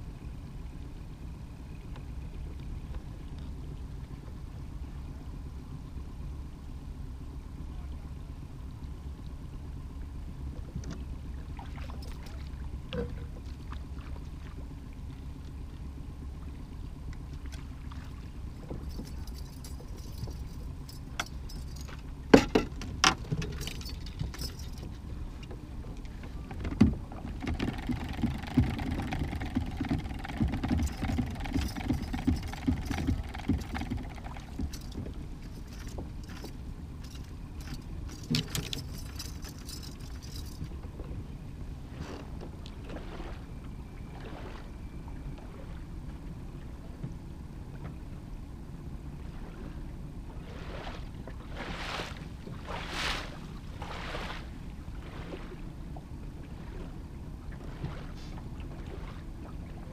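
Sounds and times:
outboard motor humming: 0:00.0 - 0:59.9
knocking and rattling: 0:18.7 - 0:25.1, 0:26.5 - 0:40.7.

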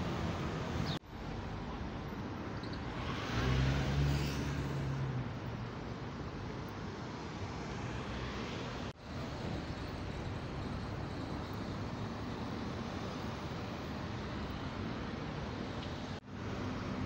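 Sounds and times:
cars driving past: 0:02.7 - 0:05.9.

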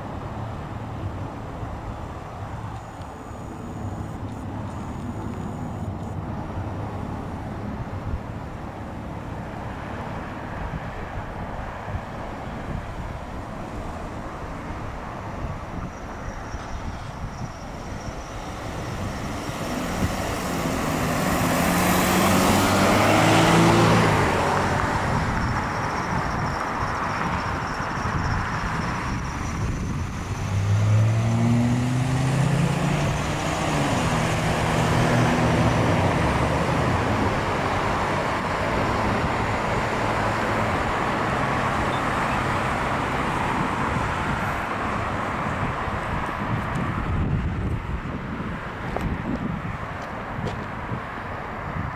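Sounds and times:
car passing close: 0:00.0 - 0:51.9
road traffic: 0:00.0 - 0:51.9
vehicle engine accelerating: 0:15.4 - 0:48.0.

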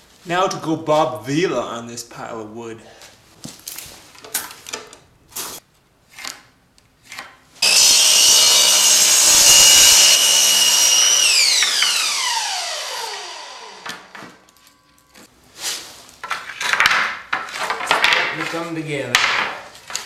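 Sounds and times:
miter saw cutting wood: 0:07.6 - 0:14.4.

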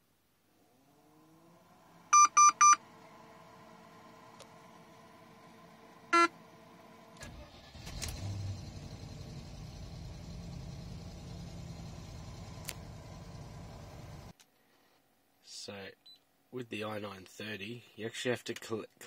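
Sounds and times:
car engine cranking and idling: 0:00.6 - 0:14.4
dashboard electronic beep: 0:02.2 - 0:02.8.

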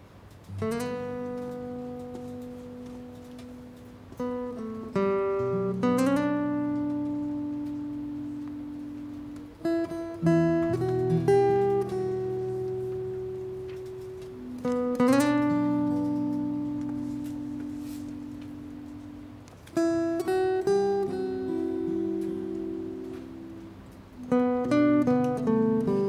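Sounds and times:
acoustic guitar plucked notes: 0:00.0 - 0:26.0.

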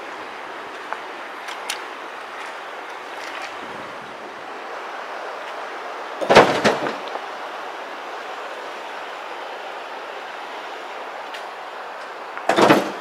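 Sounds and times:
rock crashing into steel truck bed: 0:06.2 - 0:07.1.

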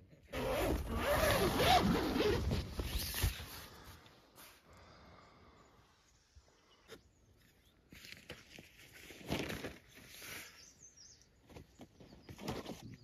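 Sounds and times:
tent fabric rustling and flapping: 0:00.3 - 0:03.8.

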